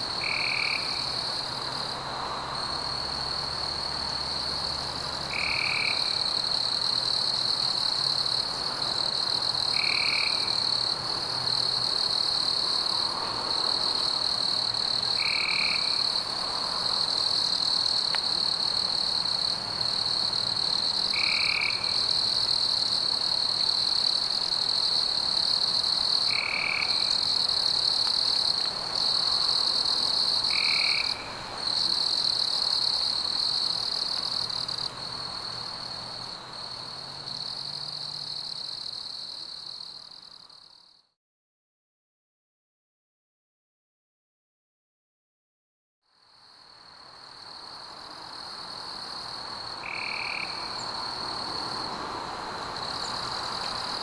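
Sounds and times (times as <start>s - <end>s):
high-pitched insect trill: 47.2s - 51.9s.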